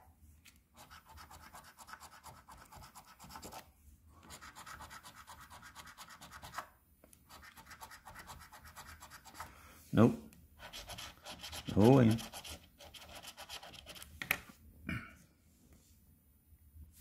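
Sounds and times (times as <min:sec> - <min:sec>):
coin scratching lottery ticket: 0:04.3 - 0:06.6, 0:10.6 - 0:14.0.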